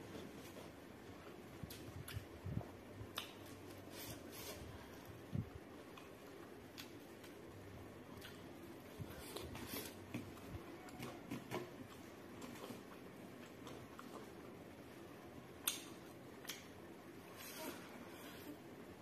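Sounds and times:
soft mouth and finger clicks: 3.1s - 3.6s, 8.2s - 8.4s, 15.6s - 16.7s
person chewing: 8.1s - 14.6s.

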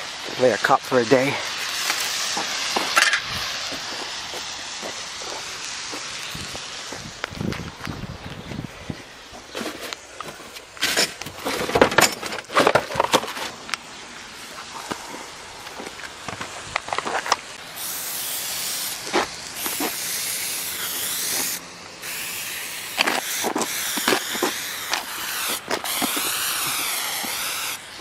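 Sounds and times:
aerosol spray can hissing: 1.3s - 7.1s, 17.6s - 28.0s.

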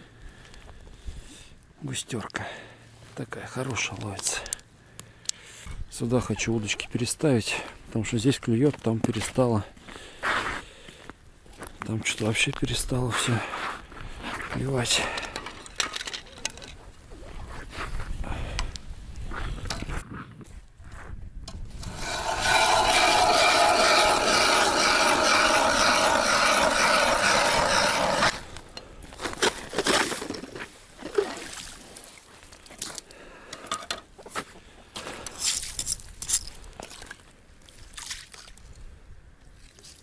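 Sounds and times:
scrapes and knocks clearing ice: 21.8s - 28.4s, 29.2s - 30.8s
ice auger grinding through ice: 21.8s - 28.6s.

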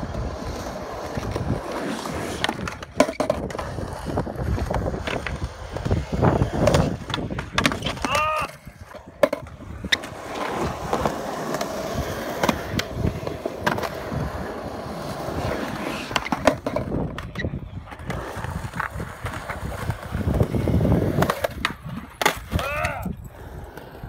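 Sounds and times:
skateboard clacks: 0.0s - 24.0s
skateboard wheels rolling on concrete: 0.0s - 24.0s.

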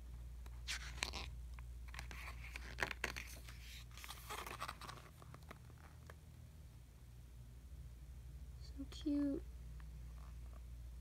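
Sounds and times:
paper pages turning: 0.5s - 6.2s.

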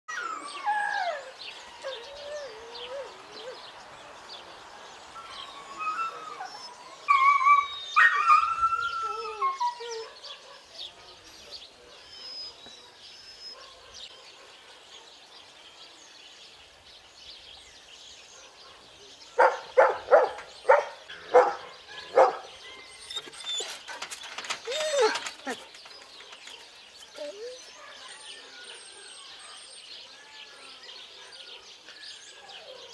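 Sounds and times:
dogs whining and howling: 0.1s - 3.8s, 5.2s - 10.2s, 21.3s - 29.7s
dog barking: 12.8s - 15.2s, 19.4s - 22.5s.

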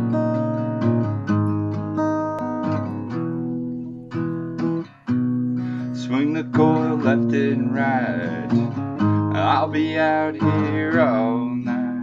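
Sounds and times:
strummed acoustic guitar: 0.0s - 12.0s
person singing: 5.7s - 12.0s.

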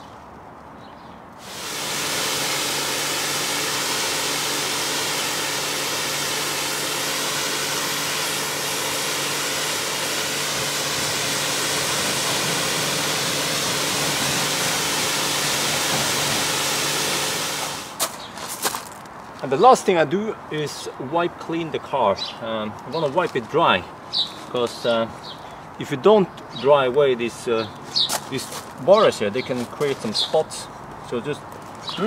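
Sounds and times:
pressure washer motor humming: 1.4s - 18.0s
pressure washer spraying water: 1.4s - 18.0s.

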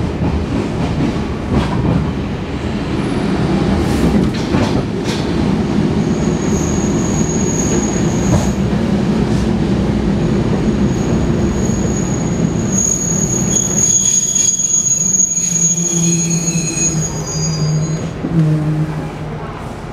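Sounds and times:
train wheels rumbling: 0.0s - 19.9s
high-pitched wheel squeal: 6.1s - 8.6s, 10.9s - 18.1s.

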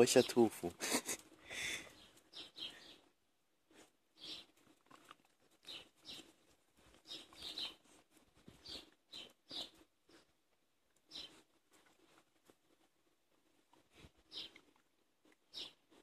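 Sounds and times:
dog chewing and smacking: 3.7s - 10.3s.

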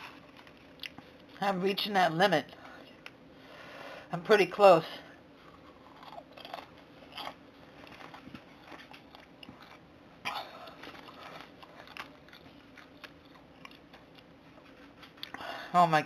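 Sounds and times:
person chewing popcorn: 0.0s - 1.6s, 5.3s - 15.6s.

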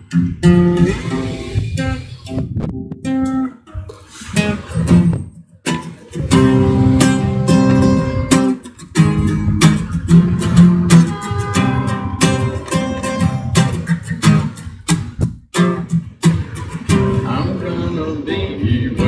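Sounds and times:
acoustic guitar: 0.0s - 19.0s.

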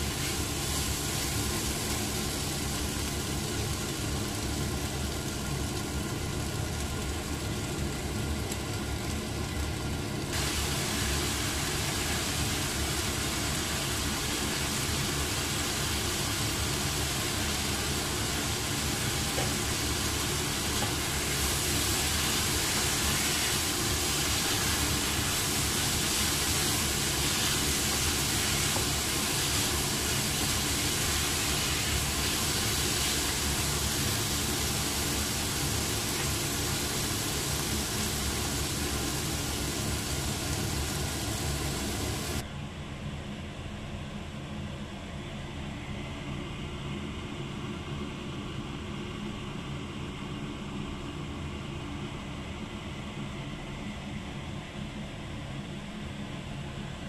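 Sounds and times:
food sizzling in a frying pan: 0.0s - 42.4s.

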